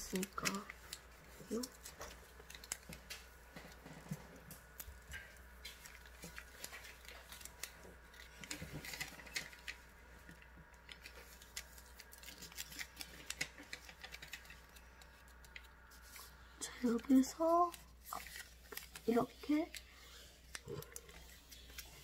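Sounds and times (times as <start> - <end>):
paper crinkling and rustling: 0.0 - 22.0.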